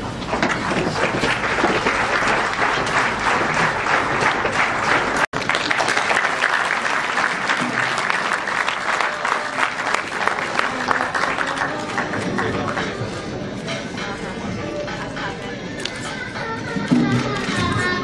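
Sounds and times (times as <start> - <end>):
crowd applauding: 0.2 - 13.2.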